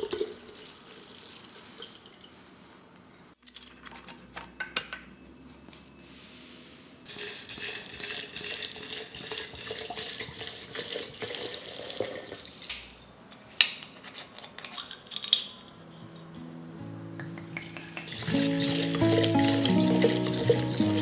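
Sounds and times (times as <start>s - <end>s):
liquor pouring into jar: 7.1s - 12.5s, 17.8s - 21.0s.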